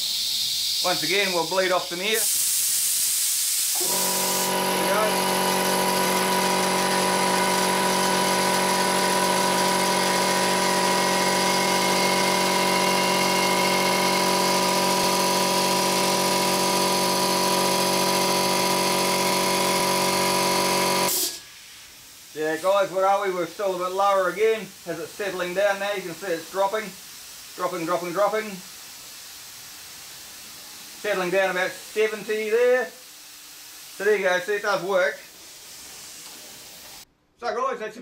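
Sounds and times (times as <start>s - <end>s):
compressed air hissing: 0.0s - 18.4s, 21.0s - 37.0s
air compressor motor running: 0.0s - 21.7s.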